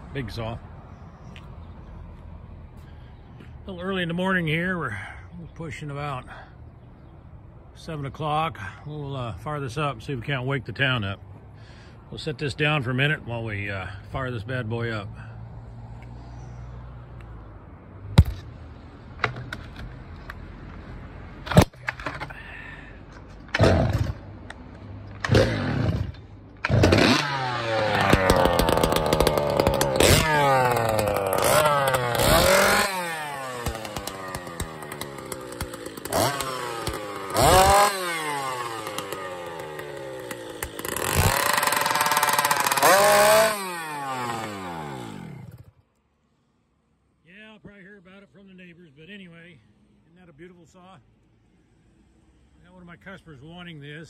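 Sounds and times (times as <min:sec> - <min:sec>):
chainsaw starting and revving: 0:23.5 - 0:24.5, 0:25.2 - 0:45.8.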